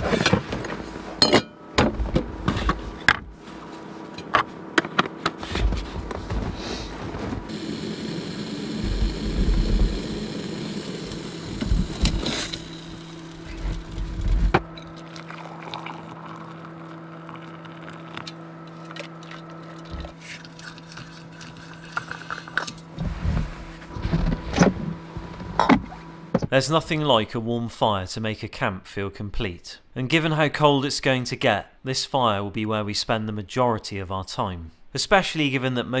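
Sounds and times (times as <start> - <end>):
gas stove burner running: 6.6 - 15.3
water boiling: 7.5 - 22.8
water pouring into cup: 14.8 - 22.6.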